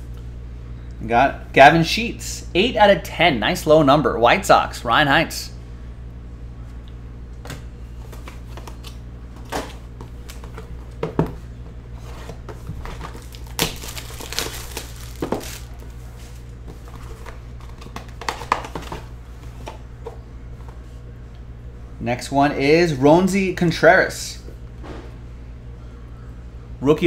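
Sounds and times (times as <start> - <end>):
low electrical hum: 0.0 - 27.0
cardboard and packaging rustling: 8.0 - 20.9.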